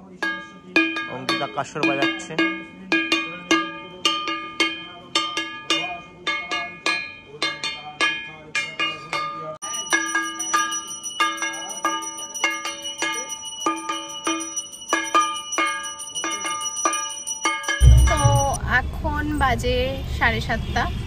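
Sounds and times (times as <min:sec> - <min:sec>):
high-pitched bell ringing: 0:00.0 - 0:19.0
gong plate struck with stick: 0:17.8 - 0:18.8.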